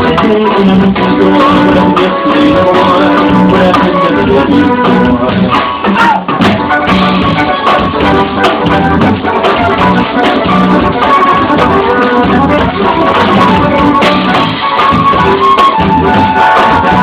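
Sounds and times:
accordion chords: 0:00.0 - 0:17.0
acoustic guitar: 0:00.0 - 0:17.0
drum kit: 0:00.0 - 0:17.0
upright bass: 0:00.0 - 0:17.0.

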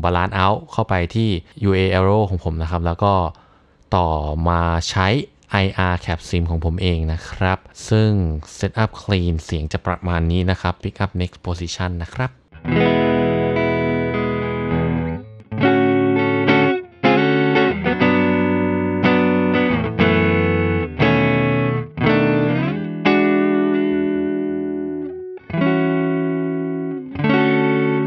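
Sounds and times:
clean electric guitar chords: 0:12.5 - 0:28.0.

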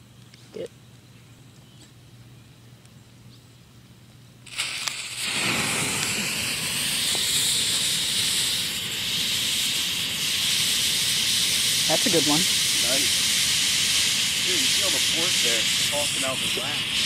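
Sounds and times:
smoke bomb hissing: 0:04.4 - 0:17.0.

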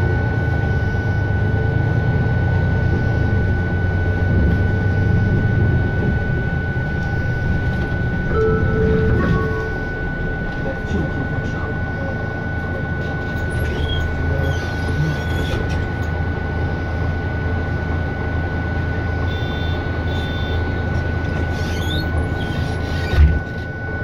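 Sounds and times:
bus diesel engine rumble: 0:00.0 - 0:24.0
thin high whine: 0:04.9 - 0:15.7.

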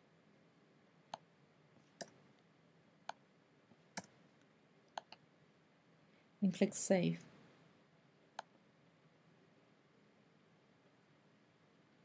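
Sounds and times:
mouse and keyboard clicks: 0:05.0 - 0:05.2.

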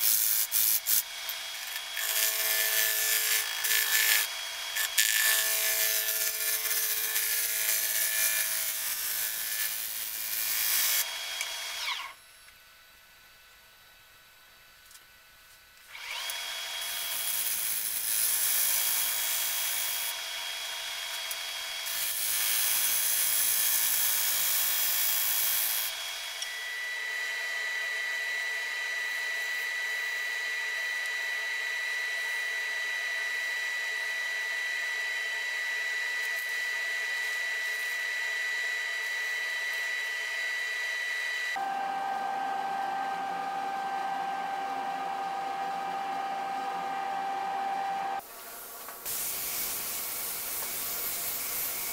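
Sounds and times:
wood lathe whining: 0:00.0 - 0:12.2, 0:16.0 - 0:48.2
sandpaper on spinning wood: 0:49.0 - 0:51.9.

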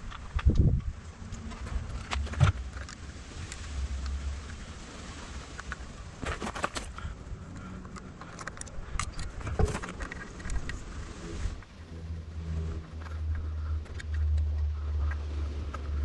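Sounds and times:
cable connector clicks and rattles: 0:00.0 - 0:04.2, 0:05.6 - 0:10.8, 0:13.0 - 0:15.9
steady low rumble: 0:06.8 - 0:16.0.

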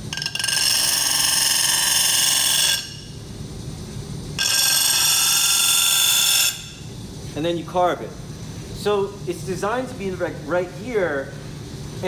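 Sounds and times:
glass grinding on wheel whine: 0:00.0 - 0:03.2, 0:04.4 - 0:06.9.

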